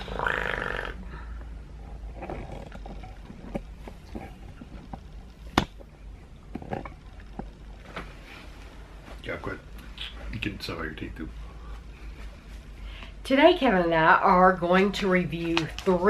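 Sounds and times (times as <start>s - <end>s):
person growling: 0.0s - 1.2s
low steady hum: 0.0s - 16.0s
faint clicks and knocks: 1.4s - 8.7s.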